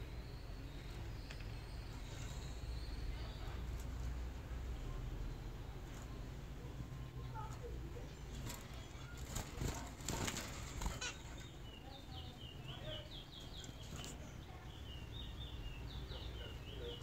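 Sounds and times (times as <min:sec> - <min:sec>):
bird wings flapping: 0:08.3 - 0:11.2.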